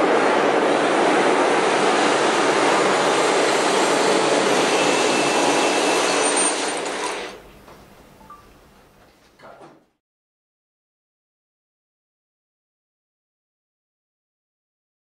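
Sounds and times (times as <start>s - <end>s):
dense rushing atmospheric noise: 0.0s - 6.4s.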